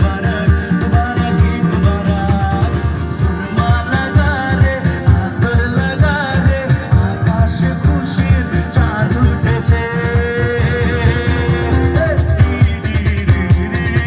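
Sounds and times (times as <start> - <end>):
song with quick beat: 0.0 - 14.0.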